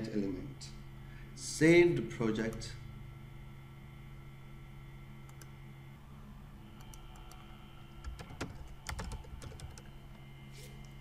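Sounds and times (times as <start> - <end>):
computer keyboard typing: 8.0 - 9.9.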